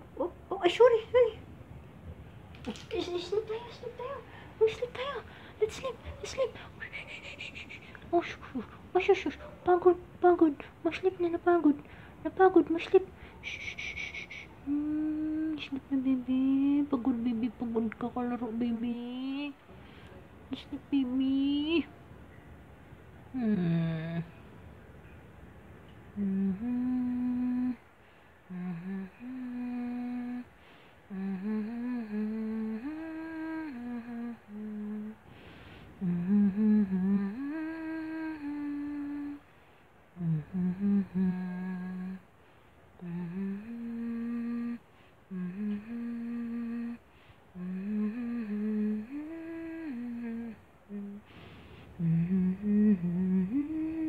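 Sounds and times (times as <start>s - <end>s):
person humming lullaby: 3.0s - 19.5s, 23.4s - 24.4s, 26.2s - 27.9s, 28.5s - 35.2s, 36.0s - 39.4s, 40.2s - 42.2s, 43.0s - 47.0s, 47.6s - 51.4s, 52.0s - 54.0s.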